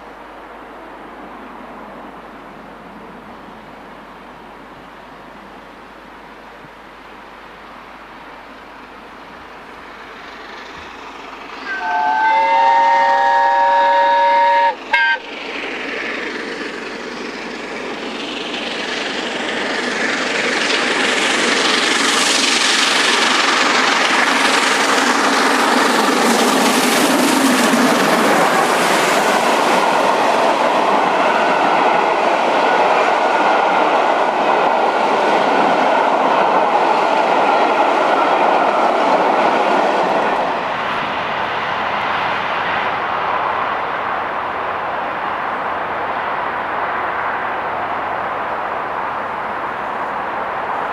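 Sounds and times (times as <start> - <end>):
steam locomotive exhaust: 9.4 - 39.8
steam locomotive whistle: 11.6 - 15.3.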